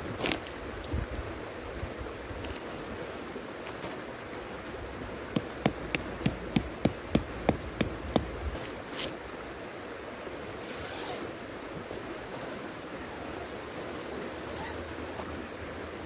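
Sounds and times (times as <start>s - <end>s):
river rushing: 0.0s - 16.0s
sharp hammer-like knocks: 5.4s - 8.4s.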